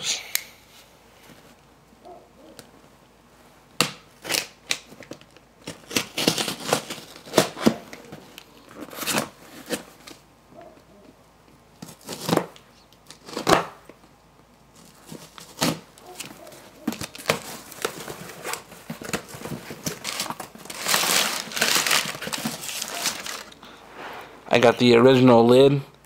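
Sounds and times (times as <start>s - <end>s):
crumpled paper crinkling: 4.2s - 10.2s, 14.7s - 23.6s
package being torn open: 4.2s - 10.2s, 11.8s - 13.8s, 14.8s - 23.6s.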